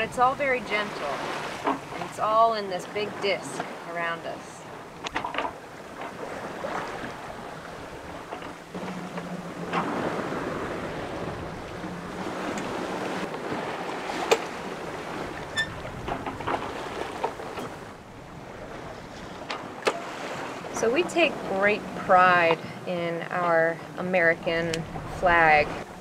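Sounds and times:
sea water washing along hull: 0.0 - 26.0
wind on microphone: 4.8 - 22.8, 24.4 - 26.0.

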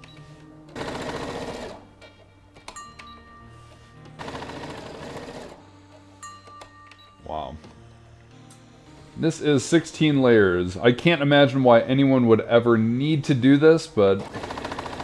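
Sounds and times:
sewing machine stitching: 0.7 - 1.8, 4.2 - 5.6, 14.2 - 15.0.

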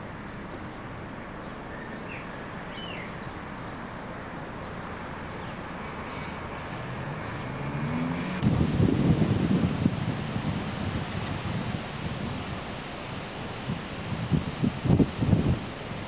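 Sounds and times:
distant engine rumble: 4.3 - 15.7
low engine note rising: 5.7 - 12.8.

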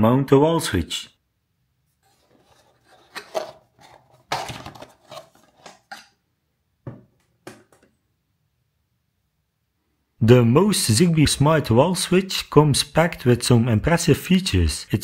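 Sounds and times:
rustling and scraping: 1.9 - 6.2.

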